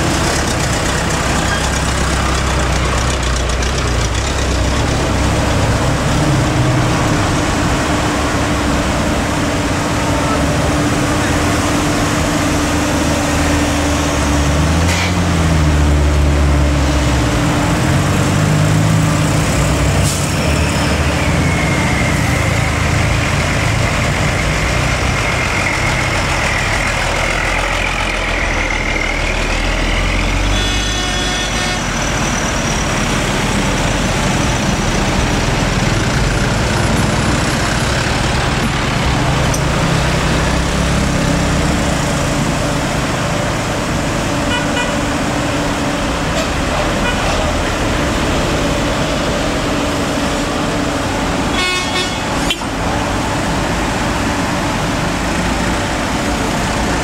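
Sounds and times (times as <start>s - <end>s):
truck engines revving: 0.0s - 57.0s
horn toot: 30.4s - 32.0s, 51.5s - 52.7s.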